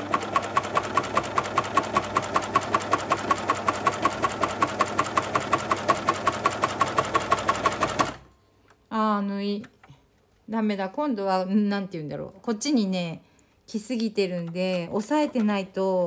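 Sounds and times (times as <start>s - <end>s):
sewing machine motor hum: 0.0s - 8.3s
sewing machine ticking: 0.0s - 8.3s.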